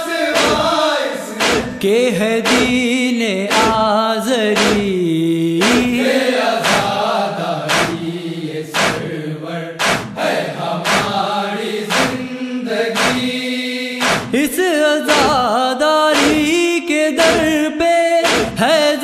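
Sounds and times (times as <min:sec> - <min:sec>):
man chanting: 0:00.1 - 0:07.0, 0:14.2 - 0:19.0
chest-beating slaps: 0:00.4 - 0:00.8, 0:01.4 - 0:02.9, 0:03.5 - 0:03.9, 0:04.6 - 0:05.0, 0:05.6 - 0:06.0, 0:06.6 - 0:07.0, 0:07.7 - 0:08.0, 0:08.8 - 0:09.1, 0:09.8 - 0:10.2, 0:10.8 - 0:11.2, 0:11.9 - 0:12.2, 0:13.0 - 0:13.4, 0:14.0 - 0:14.4, 0:15.1 - 0:15.4, 0:16.2 - 0:16.6, 0:17.2 - 0:17.6, 0:18.2 - 0:18.6.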